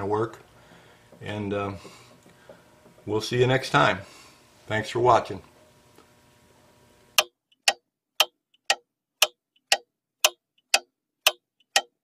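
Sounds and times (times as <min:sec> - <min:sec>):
mechanical clock ticking: 0:07.2 - 0:12.0.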